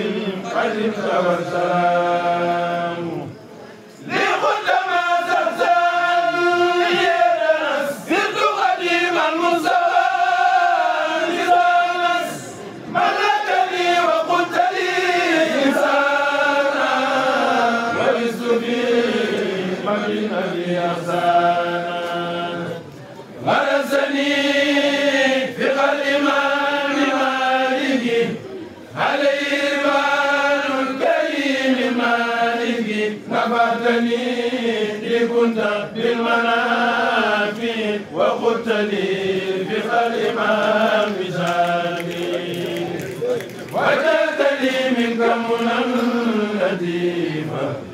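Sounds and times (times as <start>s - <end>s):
men's choir chanting: 0.0s - 3.4s, 4.0s - 47.9s.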